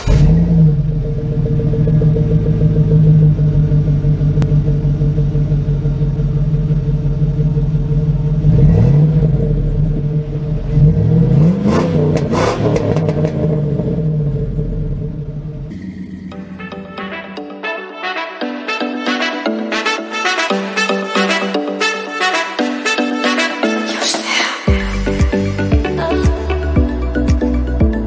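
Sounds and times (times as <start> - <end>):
vehicle engine revving: 0.0 - 17.2.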